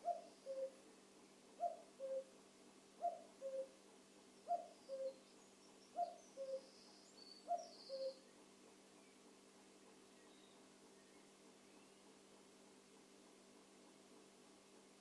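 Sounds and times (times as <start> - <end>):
cuckoo calling: 0.0 - 0.8, 1.6 - 2.3, 3.0 - 3.8, 4.5 - 5.2, 5.9 - 6.7, 7.3 - 8.2
faint steady hum: 0.0 - 15.0.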